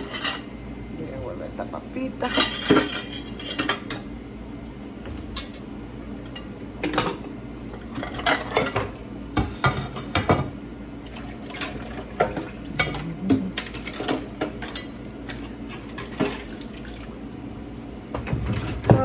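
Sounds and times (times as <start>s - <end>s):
metal utensils clinking on cookware: 12.8s - 16.4s.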